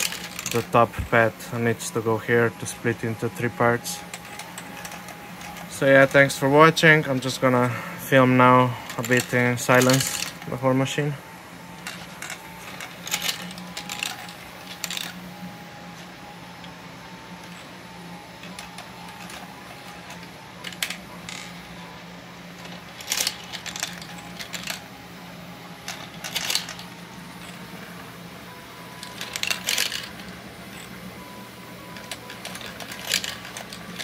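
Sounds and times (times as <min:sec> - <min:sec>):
marbles clattering on plastic tracks: 0:00.0 - 0:10.6, 0:11.8 - 0:15.2, 0:18.4 - 0:21.6, 0:22.6 - 0:24.9, 0:25.8 - 0:27.6, 0:29.0 - 0:31.0, 0:31.9 - 0:34.0
motor and gears humming: 0:00.0 - 0:34.0.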